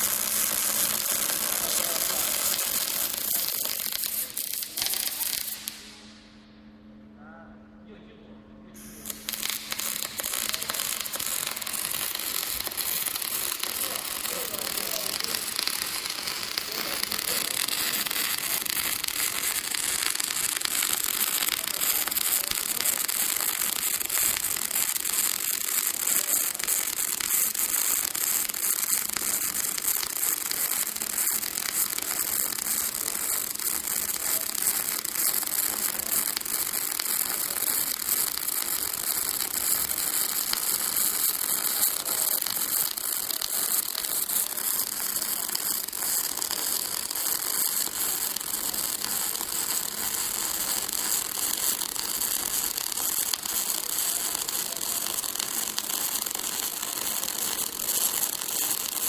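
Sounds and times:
welding arc crackling hiss: 0.0 - 6.2, 8.8 - 59.0.

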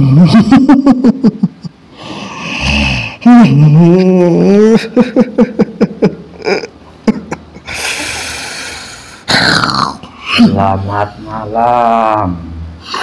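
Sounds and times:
man moaning: 2.6 - 5.0, 9.7 - 13.0.

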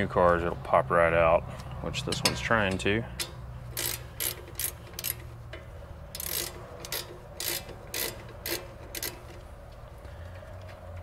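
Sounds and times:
ratcheting wrench clicking: 2.2 - 10.4.

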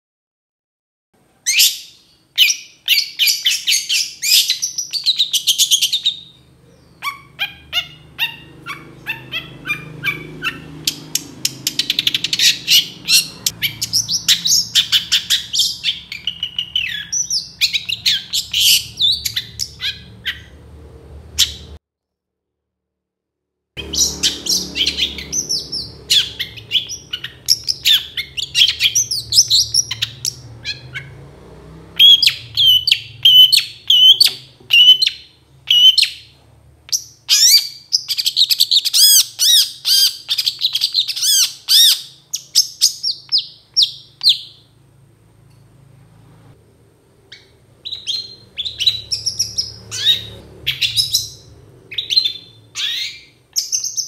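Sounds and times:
shrike singing: 1.5 - 20.7, 23.8 - 31.2, 32.0 - 36.3.

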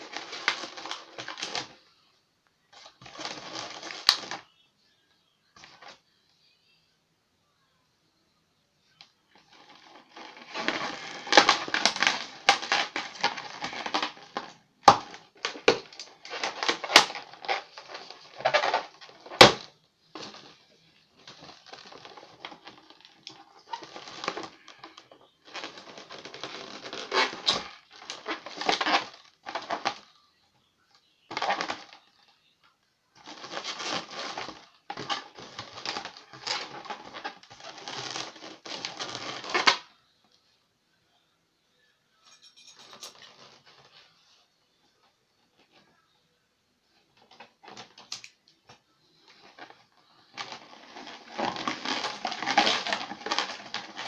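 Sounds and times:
balloons squeaking and rubbing: 0.0 - 1.8, 2.7 - 4.5, 9.3 - 30.1, 31.3 - 32.3, 33.2 - 39.9, 43.2 - 44.4, 49.1 - 54.0.

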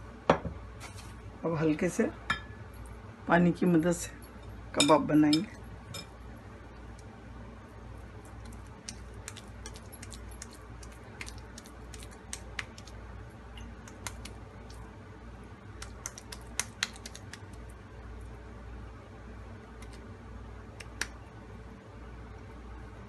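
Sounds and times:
steady low hum: 0.0 - 23.0
wet hands patting meat: 8.4 - 14.9, 15.7 - 17.7.

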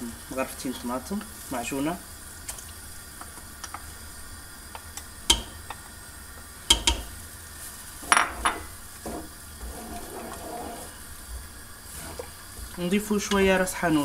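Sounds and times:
spatula scraping a cooking pot: 8.3 - 13.6.

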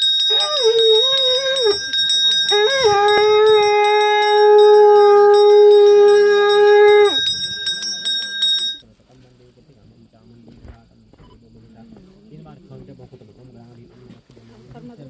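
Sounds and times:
metal bell rung rapidly: 0.0 - 8.8
horn blowing long notes: 2.5 - 7.3.

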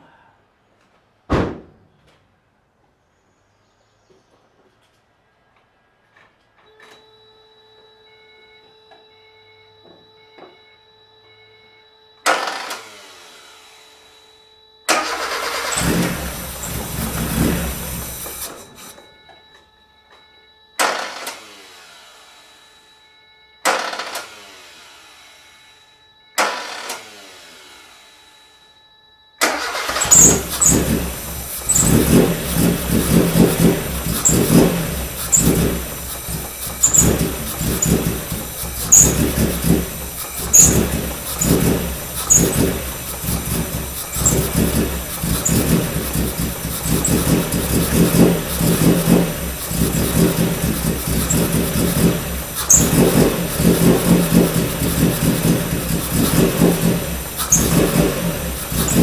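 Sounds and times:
car engine starting and running: 14.9 - 19.0, 20.8 - 22.2, 26.4 - 28.0, 29.4 - 59.0.

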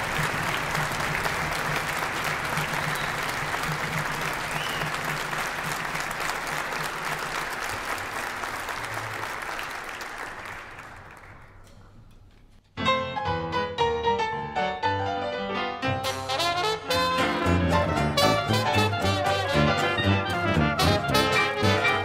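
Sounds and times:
audience applause: 0.0 - 11.8
piano notes: 12.7 - 22.0
dixieland jazz band playing: 15.5 - 22.0.

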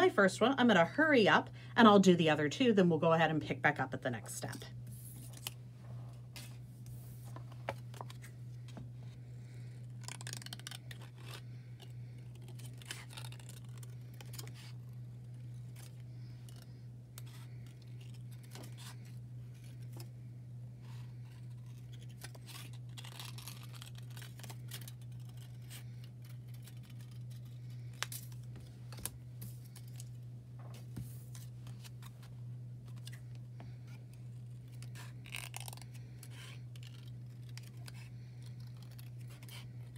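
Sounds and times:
low hum: 2.4 - 39.9
scissors snipping cellophane: 21.4 - 28.4, 34.1 - 39.9.

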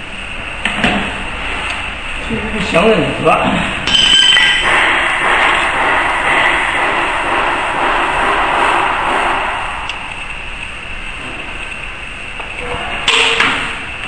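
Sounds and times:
mechanical rushing noise: 0.0 - 14.0
metallic ring: 3.8 - 4.8.

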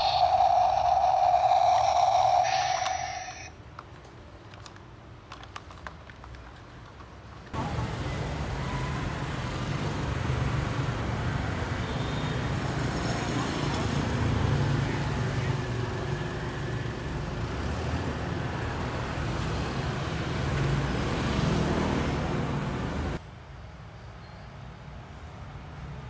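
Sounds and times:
toy electronic buzzing tone: 0.0 - 3.5
street traffic: 0.0 - 26.0
plastic clicks: 3.7 - 7.1.

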